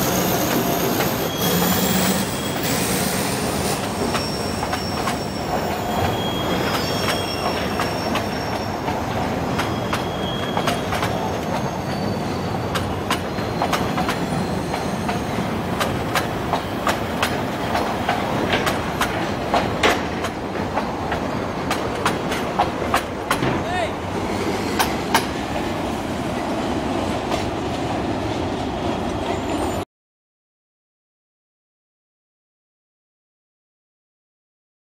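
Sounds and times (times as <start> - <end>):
wheel squeals: 0.0 - 17.0
steel wheels rumbling on track: 0.0 - 29.8
train clicks and clanks: 0.0 - 29.8.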